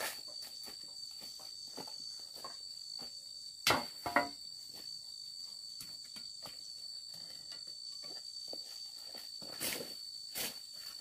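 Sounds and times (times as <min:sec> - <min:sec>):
insects chirring: 0:00.0 - 0:11.0
sharp knocks: 0:03.6 - 0:04.4.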